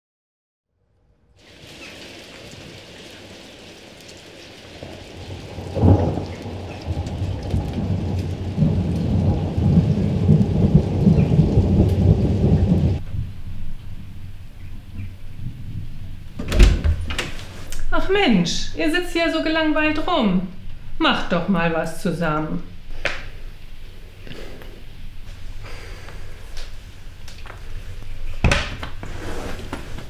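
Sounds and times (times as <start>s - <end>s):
steady rain: 1.3s - 18.4s, 22.6s - 30.0s
thunder rumbling: 1.4s - 24.0s.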